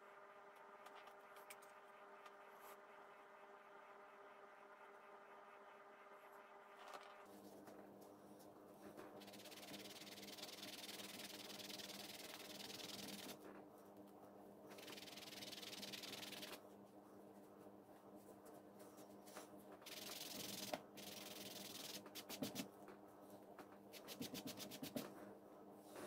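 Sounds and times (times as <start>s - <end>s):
low steady hum: 0.0s - 26.0s
pad rubbing on leather: 24.0s - 25.1s.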